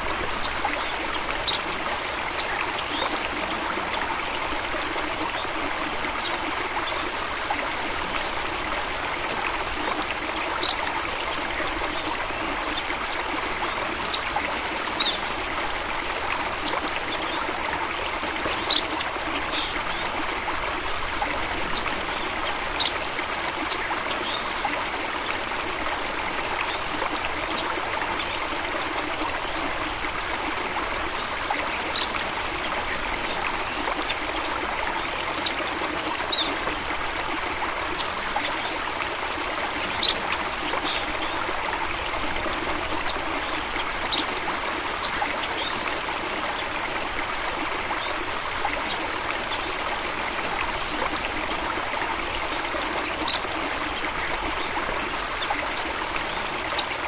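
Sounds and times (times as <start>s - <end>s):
stream running: 0.0s - 57.0s.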